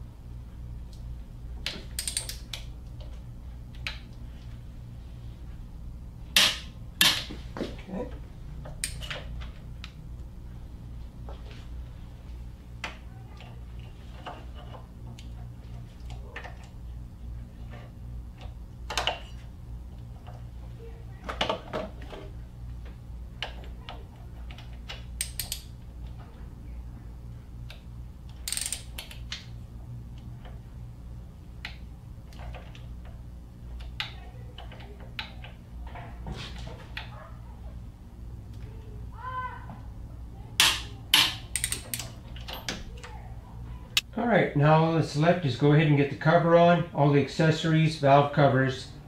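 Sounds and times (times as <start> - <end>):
steady low hum: 0.0 - 49.0
ratchet clicks: 1.9 - 2.7, 24.5 - 25.7, 27.7 - 29.5, 40.6 - 42.6.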